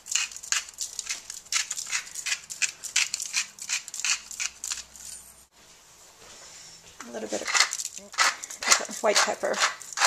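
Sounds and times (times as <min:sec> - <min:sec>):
salt shaker rattling: 0:00.0 - 0:05.3, 0:07.4 - 0:10.0.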